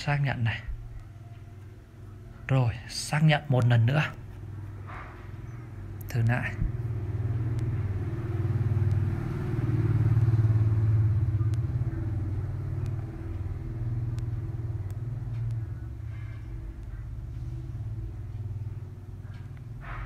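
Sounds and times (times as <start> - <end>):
low rumble: 4.2 - 20.0
faint clicks: 12.8 - 17.4.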